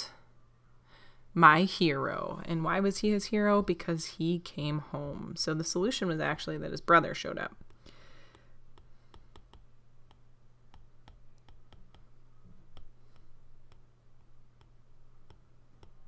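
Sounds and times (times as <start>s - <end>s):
stylus tapping on glass screen: 7.6s - 12.1s.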